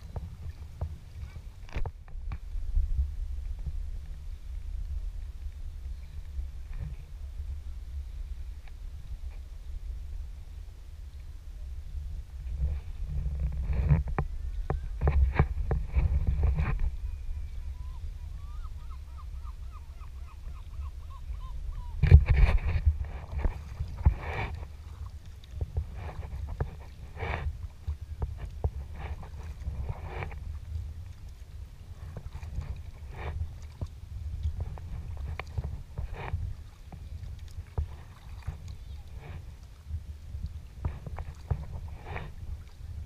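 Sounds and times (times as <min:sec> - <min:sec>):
water rumbling against hull: 0:00.0 - 0:43.0
paddle blades splashing in water: 0:12.3 - 0:43.0.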